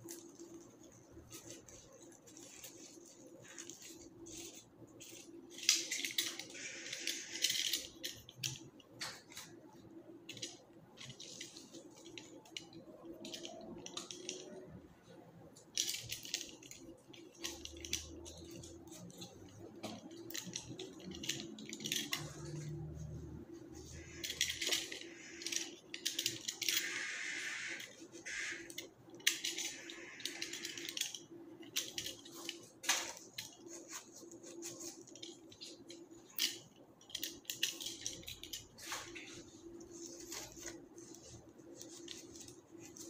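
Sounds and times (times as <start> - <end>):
flower stems and leaves rustling: 0.0 - 7.2, 37.8 - 43.0
faint steady hum: 0.0 - 43.0.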